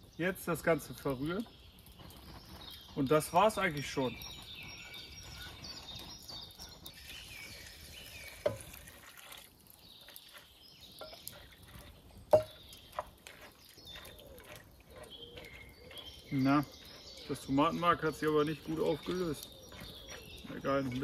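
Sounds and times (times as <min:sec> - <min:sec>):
wooden spoon stirring: 0:02.5 - 0:21.0
liquid pouring into a pot: 0:06.8 - 0:15.5
sharp knocks against a pot: 0:12.3 - 0:12.6.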